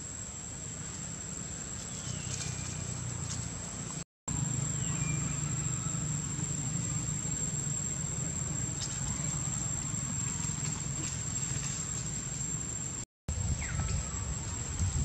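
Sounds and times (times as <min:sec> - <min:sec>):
low steady rumble: 0:00.0 - 0:15.0
high-pitched insect drone: 0:04.3 - 0:14.8.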